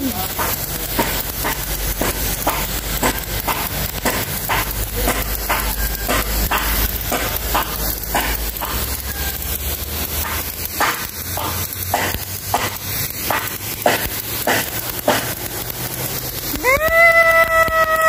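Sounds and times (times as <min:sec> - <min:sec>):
pressure washer spraying concrete: 0:00.0 - 0:18.0.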